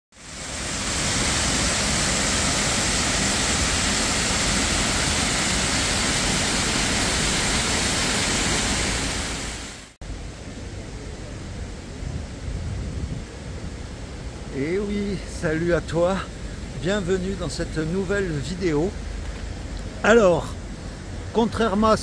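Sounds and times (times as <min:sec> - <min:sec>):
steady rushing noise: 0:00.1 - 0:22.0.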